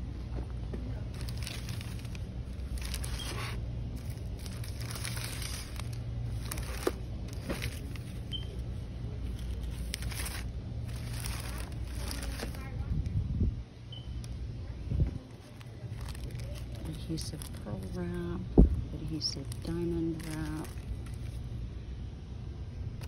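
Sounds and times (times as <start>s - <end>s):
low background hum: 0.0s - 23.0s
plastic crinkling: 0.8s - 12.9s, 15.3s - 18.3s, 18.9s - 21.6s.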